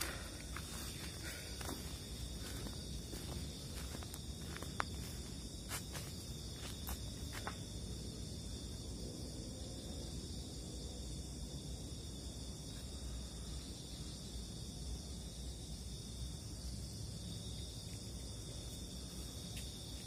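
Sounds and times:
crickets chirping: 0.0s - 20.0s.

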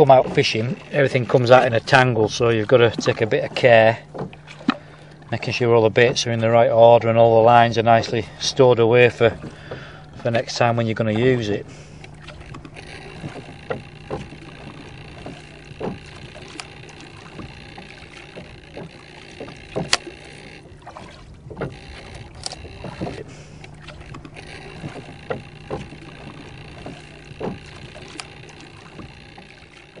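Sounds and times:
low steady hum: 0.0s - 30.0s
light knocks and clicks: 12.0s - 30.0s.

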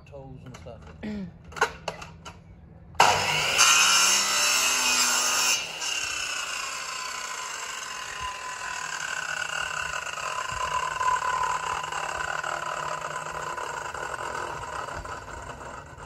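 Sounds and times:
mitre saw cutting wood: 3.0s - 16.0s.

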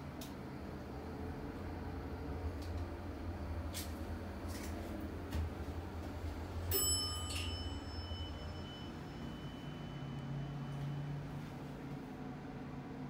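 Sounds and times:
low elevator hum: 0.0s - 13.0s
elevator chime ding: 6.6s - 11.5s.

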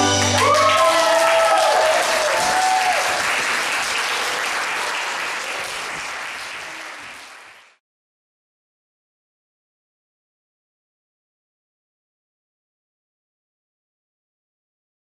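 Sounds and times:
audience applauding: 0.0s - 7.8s
people cheering: 0.0s - 7.8s.

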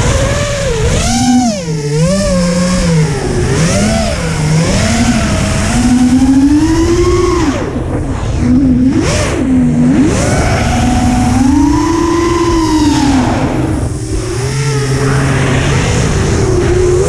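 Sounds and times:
drone motors whining: 0.0s - 17.0s
wind rumble on microphone: 0.0s - 17.0s.

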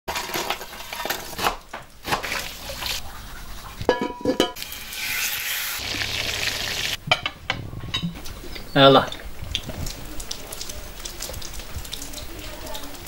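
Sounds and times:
scraping and stirring: 0.1s - 5.9s
frying sizzle: 0.1s - 13.0s
liquid pouring: 8.2s - 13.0s.

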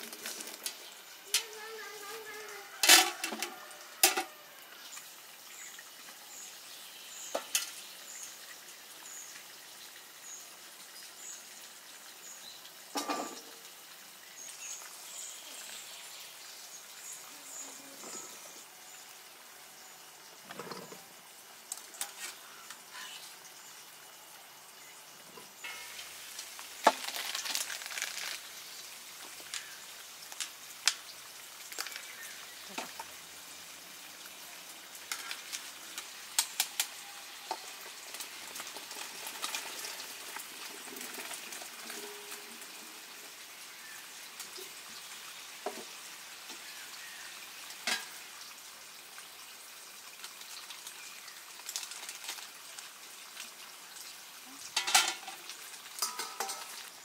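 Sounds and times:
food sizzling in a pan: 0.0s - 57.0s
utensil clinking against pan: 56.0s - 56.8s.

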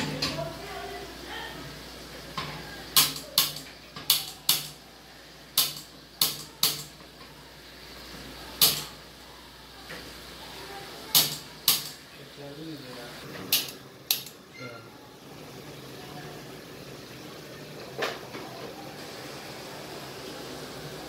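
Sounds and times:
gas lighter clicking: 5.6s - 6.9s, 11.1s - 12.0s, 13.5s - 14.4s.

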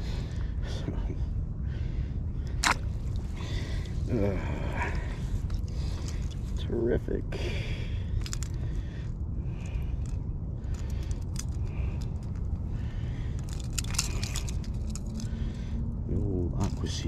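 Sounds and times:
small metallic clicks and jingles: 8.0s - 8.8s, 9.6s - 12.6s, 13.2s - 15.5s.

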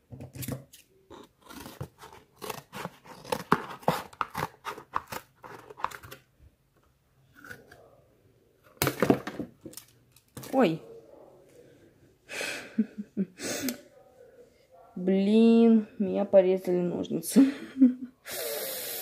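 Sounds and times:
scissors cutting cardboard: 0.1s - 6.2s.

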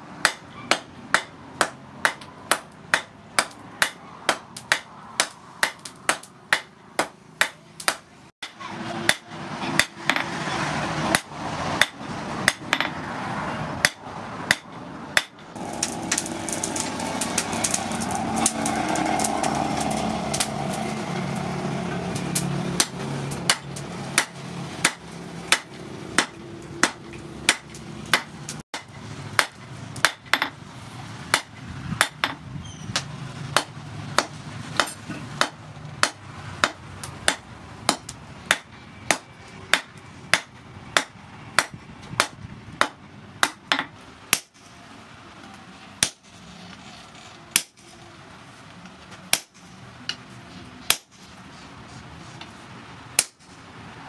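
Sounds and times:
steady rushing noise: 8.8s - 38.6s.

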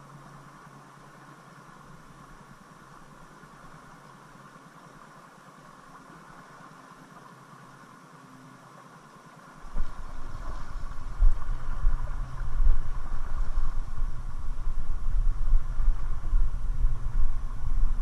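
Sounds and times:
river water running over rocks: 0.0s - 18.0s
wind rumble on microphone: 9.6s - 18.0s.

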